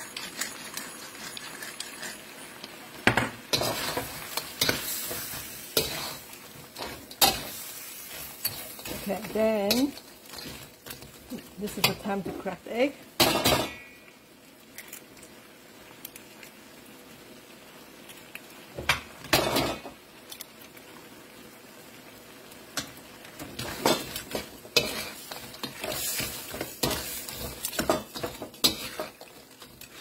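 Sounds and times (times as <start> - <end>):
spatula scraping a pan: 0.0 - 2.9, 3.5 - 12.2, 23.4 - 30.0
crab sizzling in a wok: 0.0 - 30.0.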